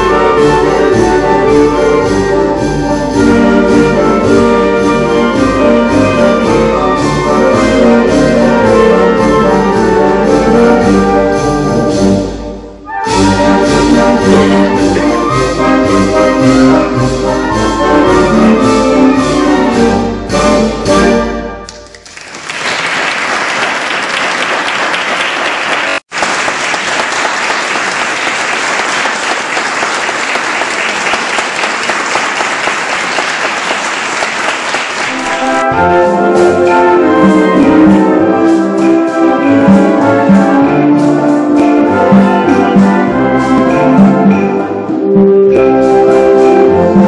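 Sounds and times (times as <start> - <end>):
instrumental ensemble playing: 0.0 - 22.2, 28.7 - 47.0
audience applauding: 21.8 - 35.6.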